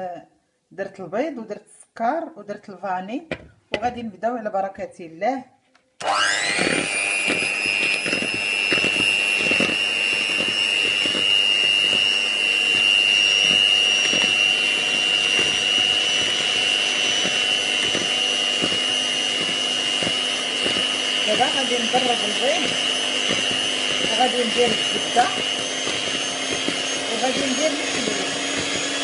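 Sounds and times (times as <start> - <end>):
electric mixer whining: 6.0 - 29.0.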